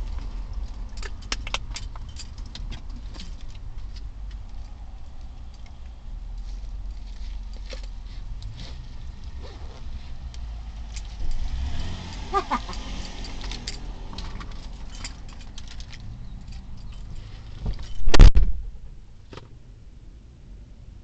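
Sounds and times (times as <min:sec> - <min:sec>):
clicks and rustling in a car: 0:00.0 - 0:19.6
loud thump: 0:18.0 - 0:18.8.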